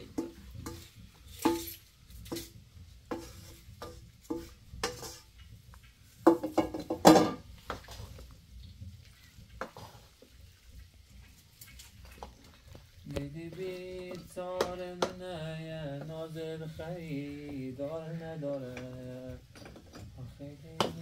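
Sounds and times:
metal utensil scraping in pot: 0.0s - 5.4s.

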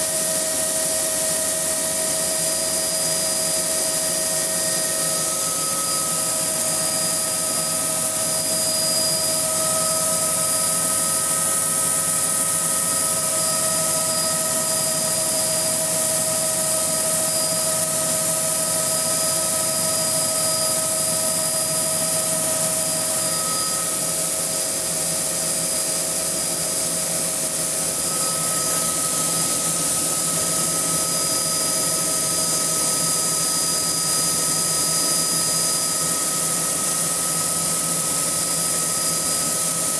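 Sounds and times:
steady whines: 0.0s - 39.8s
helicopter cabin drone: 0.0s - 39.9s.

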